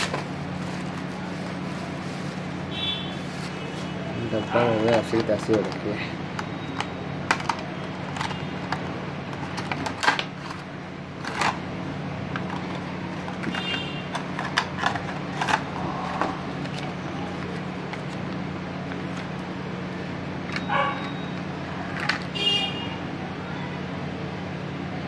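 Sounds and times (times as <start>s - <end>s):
plastic packaging crinkling: 0.0s - 19.5s.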